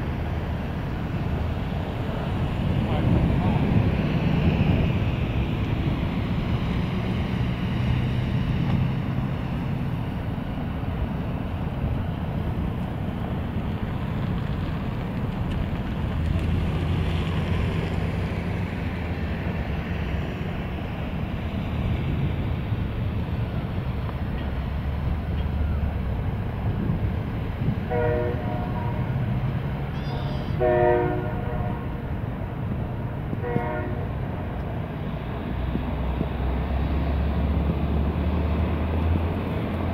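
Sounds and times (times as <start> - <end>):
jet engines low rumble: 0.0 - 39.9
short horn-like tones: 30.0 - 32.0, 33.4 - 34.2.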